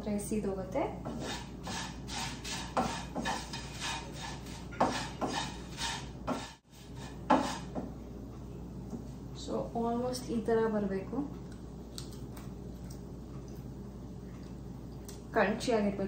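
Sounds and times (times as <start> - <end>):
wooden spatula scraping pan: 1.0 - 7.9.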